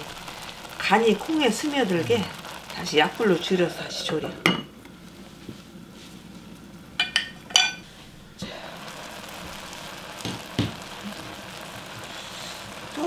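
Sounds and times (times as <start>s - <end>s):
beans simmering hiss: 0.0s - 13.0s
glass lid clinking on pan: 7.0s - 7.8s
soft knock: 10.2s - 10.8s.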